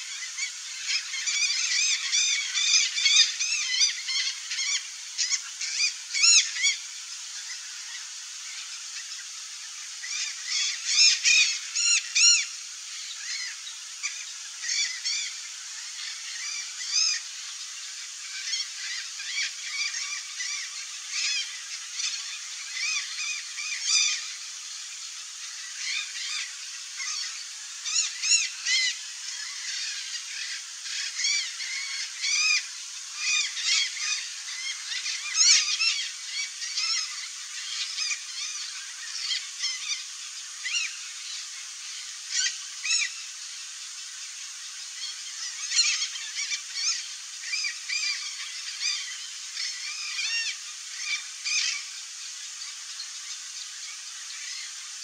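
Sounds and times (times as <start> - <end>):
macaws squawking: 0.0 - 6.8, 25.7 - 40.0.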